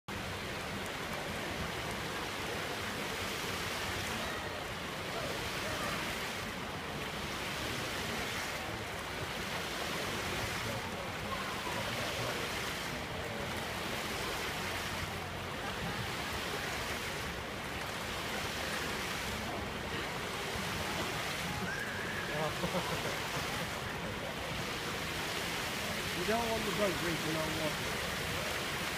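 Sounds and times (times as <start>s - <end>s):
fountain jets splashing on paving: 0.1s - 28.9s.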